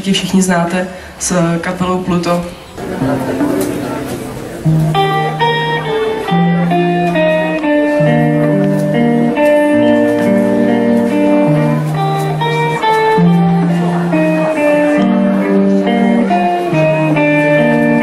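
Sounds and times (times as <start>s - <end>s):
electric guitars playing chords: 2.6s - 18.0s
electronic keyboard: 2.8s - 15.8s.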